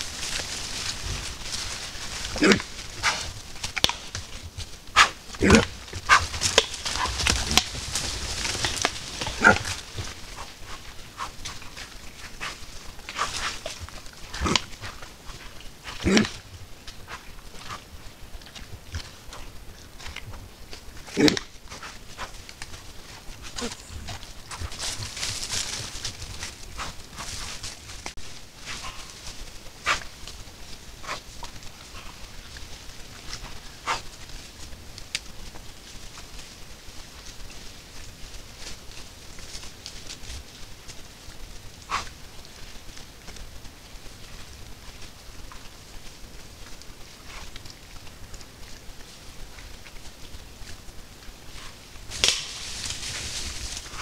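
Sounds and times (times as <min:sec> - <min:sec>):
sharp crunches in leaves: 0:00.0 - 0:15.4, 0:23.1 - 0:30.4, 0:51.5 - 0:54.0
rustling in leaf litter: 0:00.0 - 0:18.4, 0:19.1 - 0:54.0
peccaries grunting: 0:02.1 - 0:04.1, 0:04.9 - 0:17.9, 0:21.0 - 0:22.4, 0:23.0 - 0:25.9.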